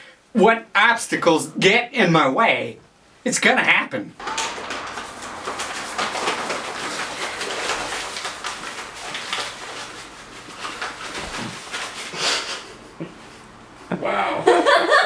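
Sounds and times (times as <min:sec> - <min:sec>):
powder hissing rustles: 0:04.2 - 0:13.5.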